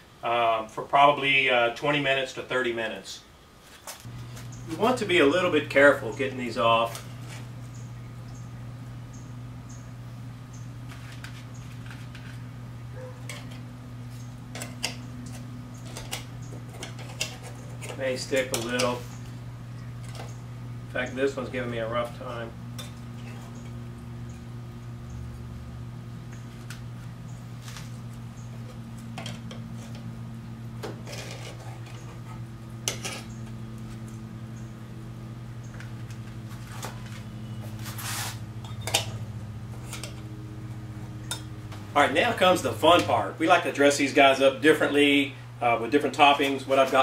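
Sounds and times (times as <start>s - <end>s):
steady low hum: 0.0s - 47.0s
metal utensil scraping muffin tin: 14.6s - 19.0s, 31.0s - 32.3s.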